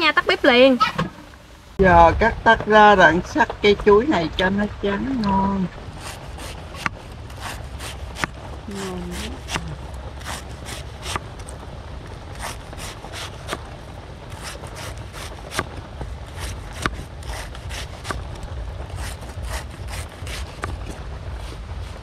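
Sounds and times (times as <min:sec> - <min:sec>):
low rumble: 0:00.0 - 0:22.0
cleaver chopping on wooden board: 0:07.9 - 0:08.4, 0:16.4 - 0:18.2.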